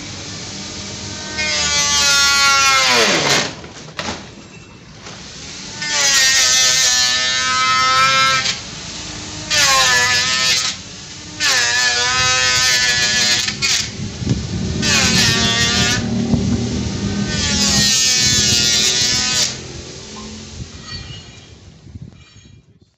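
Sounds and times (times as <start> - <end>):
grass trimmer motor whining: 1.1 - 3.6, 11.3 - 20.9.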